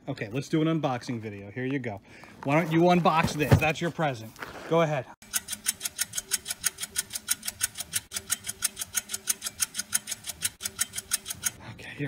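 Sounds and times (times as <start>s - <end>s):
fast clock ticking: 5.2s - 11.6s.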